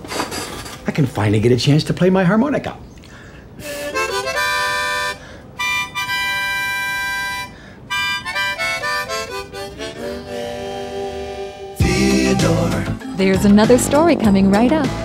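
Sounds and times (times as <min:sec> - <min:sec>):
harmonica playing: 0:03.6 - 0:15.0.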